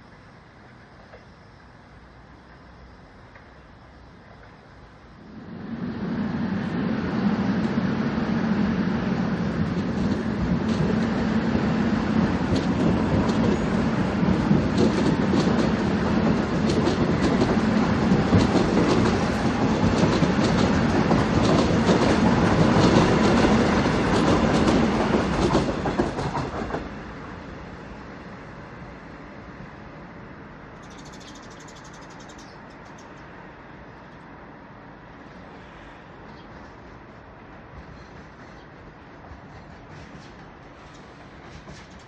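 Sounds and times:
train wheels rumbling: 4.2s - 33.3s, 36.5s - 42.0s
wheels clacking over rail joints: 9.6s - 27.0s.

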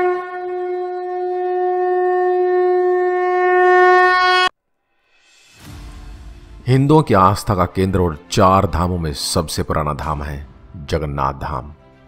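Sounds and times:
conch shell blown: 0.0s - 4.5s.

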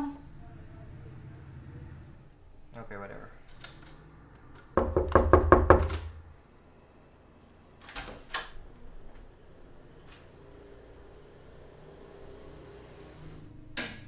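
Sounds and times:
knocking on wooden door: 4.7s - 6.3s.

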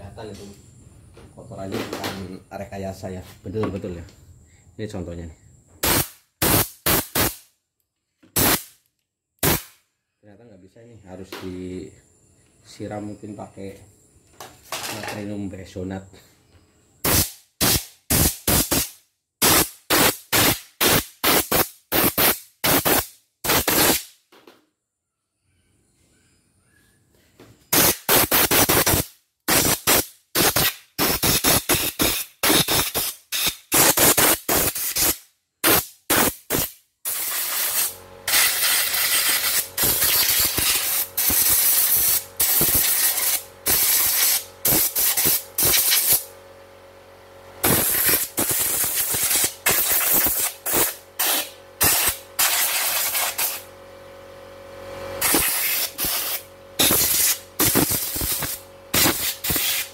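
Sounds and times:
compressed air gun hissing: 5.8s - 7.5s, 8.4s - 8.8s, 9.4s - 9.8s, 17.0s - 24.1s, 27.7s - 46.3s, 47.6s - 53.6s, 55.2s - 59.9s
steady hum: 27.7s - 59.9s.

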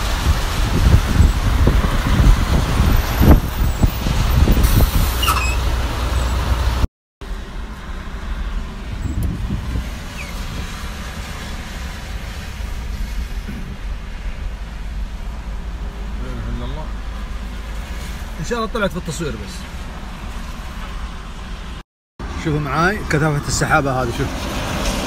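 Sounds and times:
wind buffeting the microphone: 0.0s - 5.3s, 8.8s - 11.4s
car driving on wet road: 0.0s - 25.0s
car road noise: 0.0s - 25.0s.

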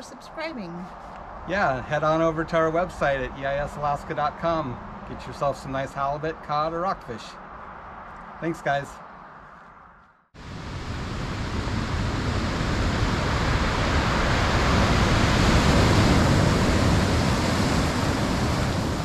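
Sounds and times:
steady rushing noise: 7.4s - 19.0s.

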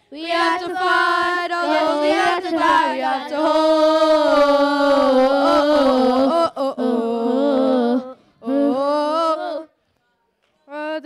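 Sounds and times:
young voices singing gospel: 0.0s - 9.8s.

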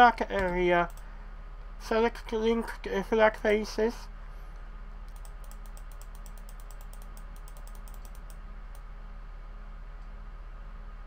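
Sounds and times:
low electrical hum: 0.0s - 11.0s
keyboard keys clicking: 5.1s - 8.4s.

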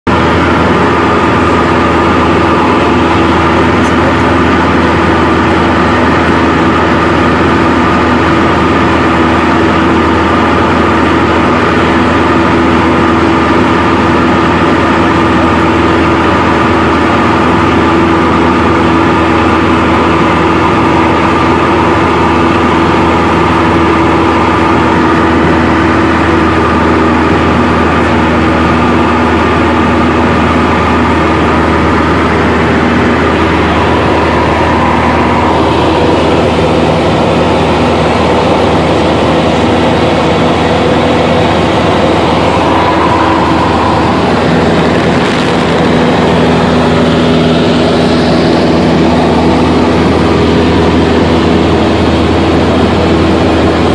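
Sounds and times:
light aircraft engine and propeller: 0.0s - 53.9s.

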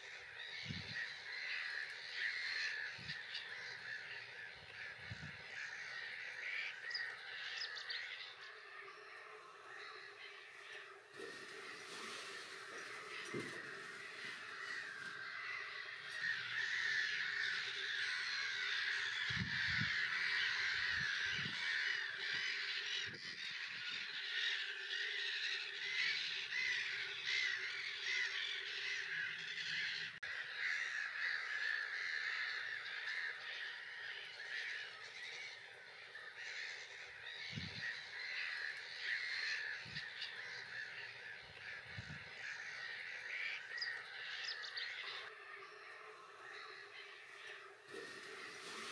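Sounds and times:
gulls calling: 0.0s - 48.9s.

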